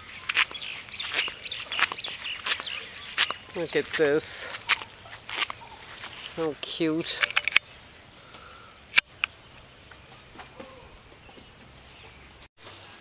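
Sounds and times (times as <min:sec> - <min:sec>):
insects buzzing: 0:00.0 - 0:13.0
sharp clicks: 0:07.1 - 0:07.6, 0:08.9 - 0:09.4.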